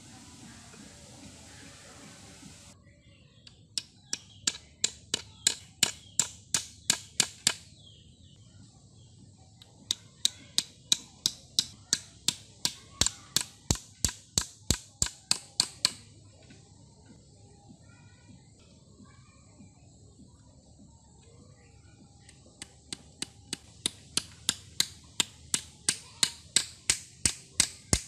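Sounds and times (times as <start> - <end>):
hammer tapping on bamboo: 3.5 - 7.7, 9.6 - 16.1, 22.2 - 28.0.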